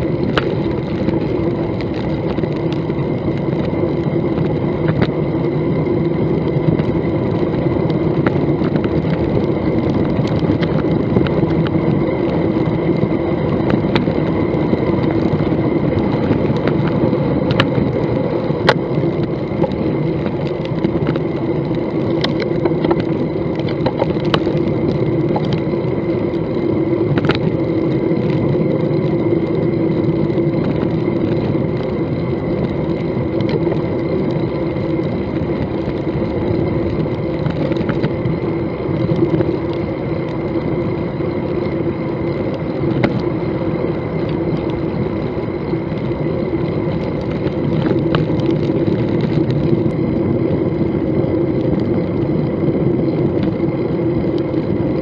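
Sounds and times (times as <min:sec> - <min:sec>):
bicycle clicks and rattles: 0:00.0 - 0:55.0
wind and tyre noise: 0:00.0 - 0:55.0.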